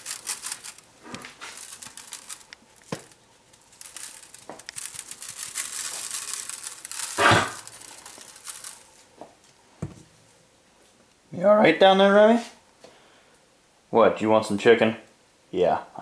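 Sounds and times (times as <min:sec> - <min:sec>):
spice shaker rattling: 0:00.0 - 0:09.0.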